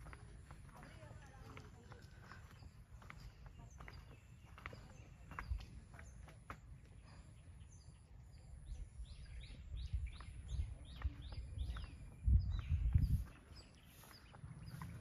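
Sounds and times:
small birds chirping: 0.0s - 15.0s
low rumbling on microphone: 7.0s - 15.0s.

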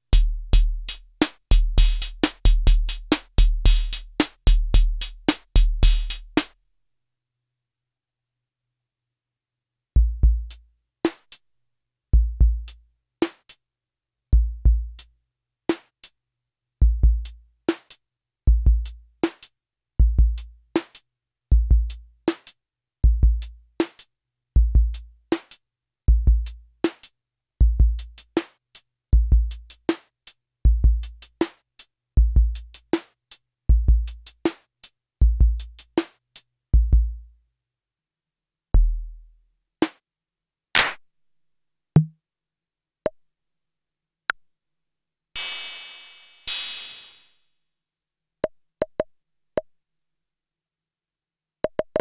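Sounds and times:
sharp hi-hat ticks: 45.4s - 47.4s.

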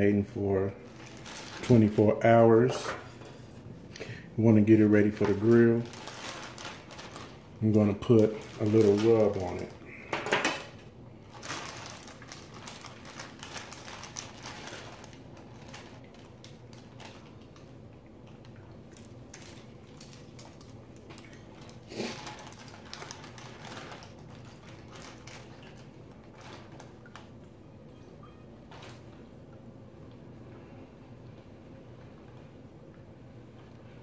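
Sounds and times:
plastic bag crinkling: 0.0s - 3.1s, 4.4s - 27.6s, 28.6s - 29.3s.

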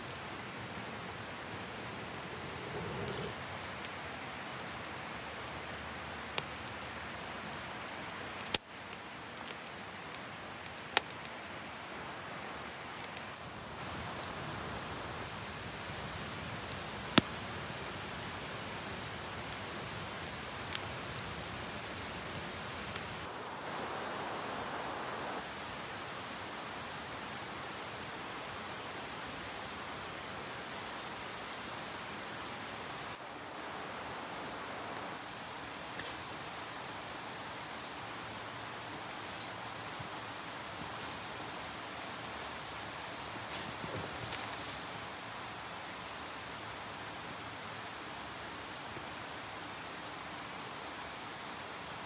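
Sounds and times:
kindling fire crackling: 0.0s - 52.0s.

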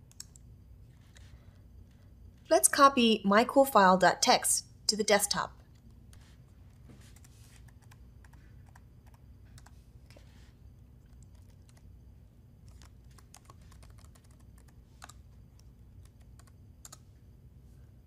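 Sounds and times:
low background hum: 0.0s - 18.0s
typing on keyboard: 7.1s - 9.8s, 11.0s - 11.9s, 12.6s - 17.0s.

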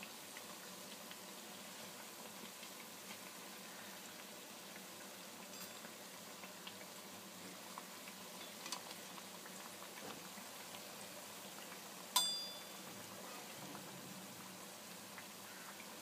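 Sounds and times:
food deep-frying in oil: 0.0s - 16.0s.

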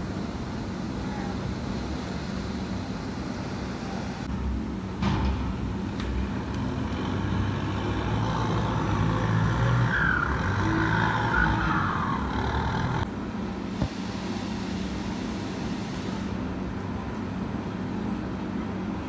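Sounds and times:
tractor engine running: 6.1s - 13.1s.

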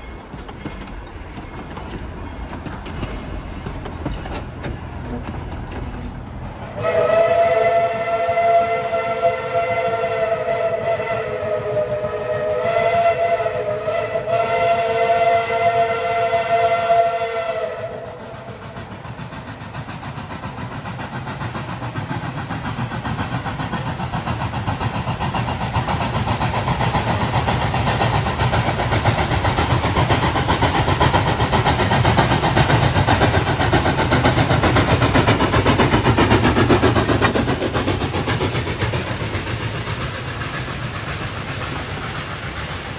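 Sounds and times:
locomotive exhaust chuffing: 0.0s - 42.9s
train wheels rumbling: 0.0s - 42.9s
steam locomotive chime whistle: 6.7s - 18.4s.

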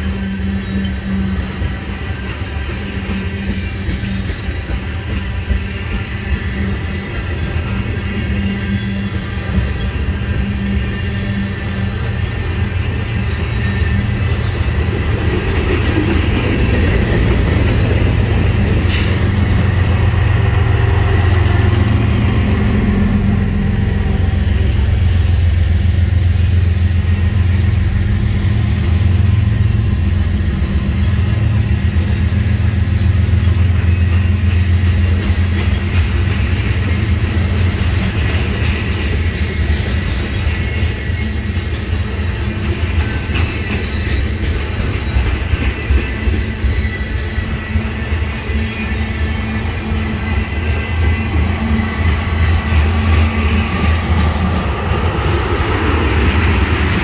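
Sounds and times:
freight train wheels rumbling: 0.0s - 57.0s.

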